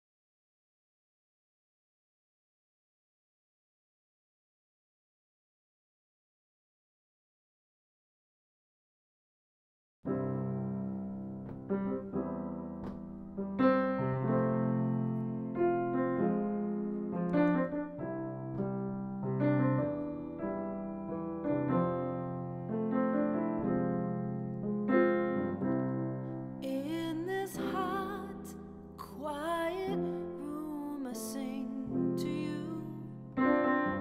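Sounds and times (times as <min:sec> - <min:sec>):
grand piano playing: 0:10.1 - 0:34.0
woman singing: 0:26.6 - 0:33.3.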